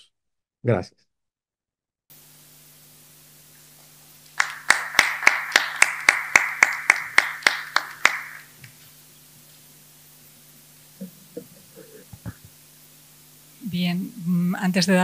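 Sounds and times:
faint steady hum: 0:02.1 - 0:15.0
loud even claps: 0:04.3 - 0:08.8
people clapping: 0:04.3 - 0:08.8.

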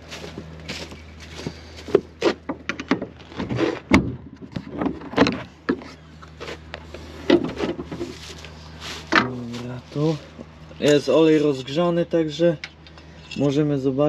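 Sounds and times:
steady low hum: 0:00.0 - 0:14.0
knocks clicks and clanks: 0:01.9 - 0:08.2.

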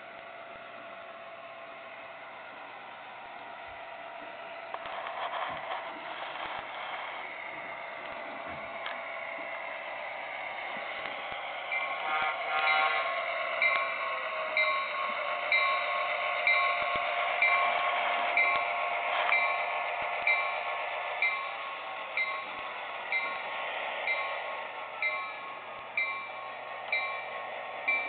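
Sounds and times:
bell ringing: 0:12.6 - 0:28.0.

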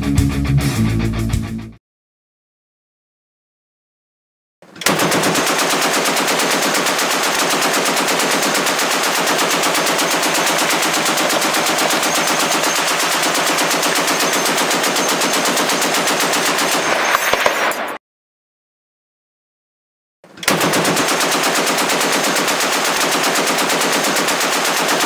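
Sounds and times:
heavy machine gun automatic fire: 0:04.8 - 0:18.0, 0:20.4 - 0:25.0.

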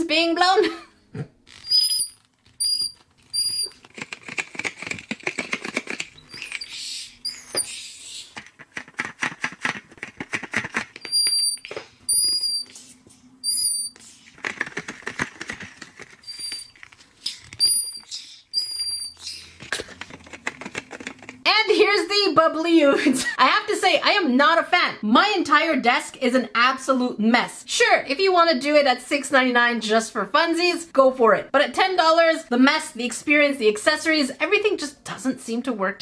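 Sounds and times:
high-pitched squeaks: 0:01.5 - 0:03.8, 0:06.2 - 0:07.9, 0:11.0 - 0:14.0, 0:16.2 - 0:19.4.

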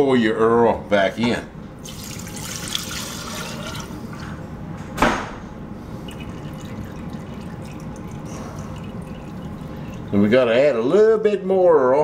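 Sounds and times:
oil pouring into deep fryer: 0:01.8 - 0:04.0, 0:06.1 - 0:10.5
sharp knock: 0:05.0 - 0:05.4.

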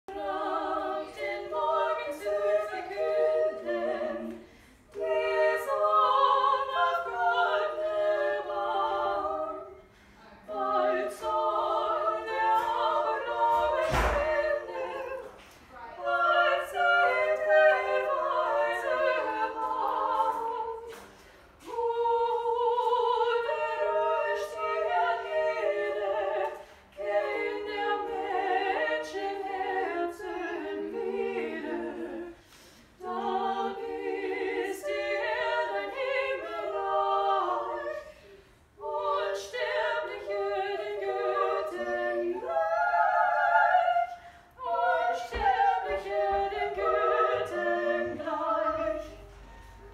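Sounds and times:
women singing unaccompanied: 0:00.0 - 0:32.4, 0:33.0 - 0:38.2, 0:38.8 - 0:49.5.

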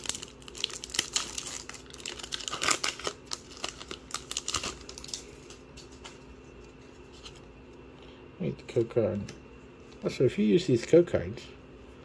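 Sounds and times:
foil wrapper crinkling: 0:00.0 - 0:06.2.

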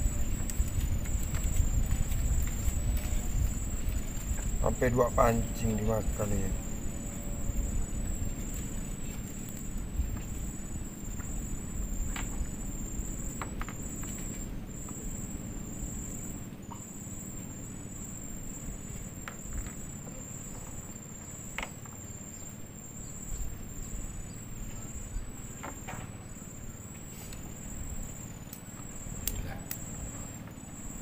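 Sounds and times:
low rumble: 0:00.0 - 0:16.1
insects chirring: 0:00.0 - 0:31.0.

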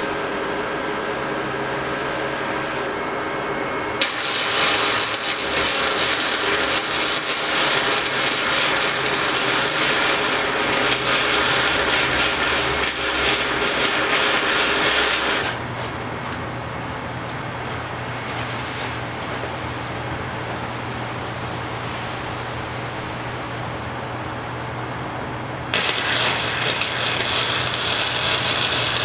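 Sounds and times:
welding arc crackling: 0:04.0 - 0:16.4, 0:25.7 - 0:29.0.

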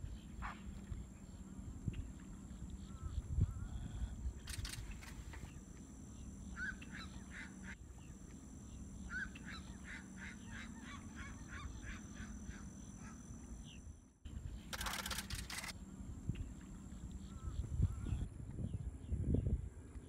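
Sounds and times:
low background hum: 0:00.0 - 0:20.0
birds quick repeated calls: 0:01.9 - 0:07.8, 0:08.7 - 0:13.8, 0:14.4 - 0:18.3.

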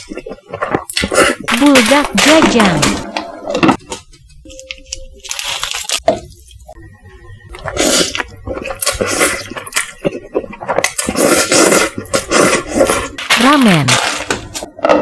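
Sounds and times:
chewing: 0:00.0 - 0:01.8, 0:07.5 - 0:15.0
slurping noodles: 0:07.6 - 0:13.3.

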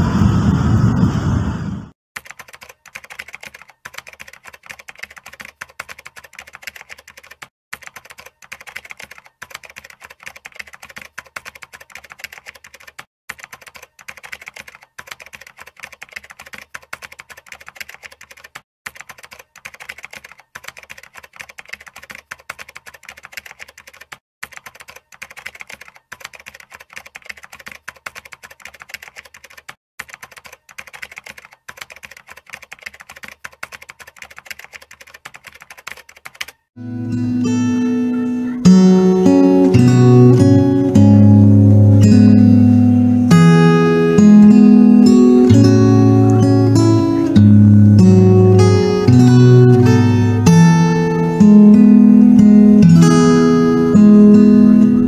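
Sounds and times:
rapid keyboard typing: 0:02.2 - 0:36.7, 0:37.8 - 0:55.0.

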